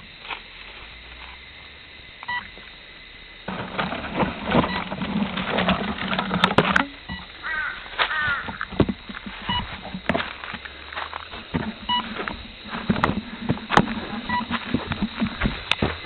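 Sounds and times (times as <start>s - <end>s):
leaves and twigs crackling: 3.4s - 16.0s.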